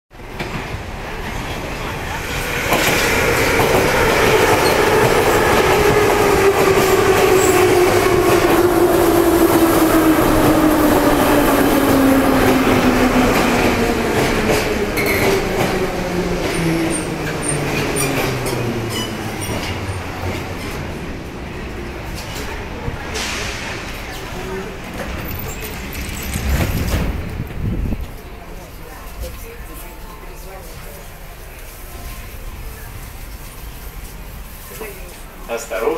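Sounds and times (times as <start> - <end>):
train wheels rumbling on rails: 0.2 - 31.6
train braking: 2.4 - 20.2.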